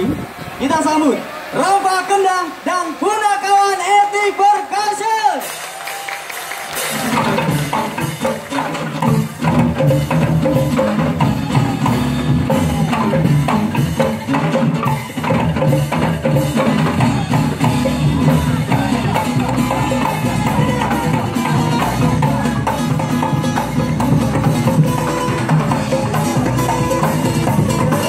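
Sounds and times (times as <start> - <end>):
hand drums fast rhythm: 6.8 - 28.0
steady pitched notes: 7.2 - 28.0.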